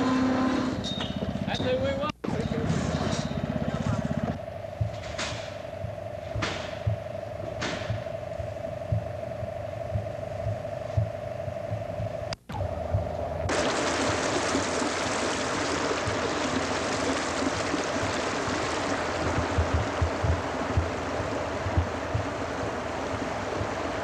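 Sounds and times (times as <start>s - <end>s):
low bumps: 4.8s - 24.0s
water rushing over rocks: 13.5s - 20.6s.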